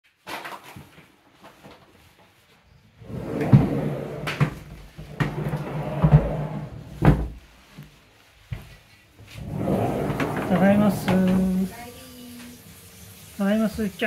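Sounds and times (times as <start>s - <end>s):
sliding door rattling and knocking: 3.1s - 7.4s, 9.4s - 11.6s.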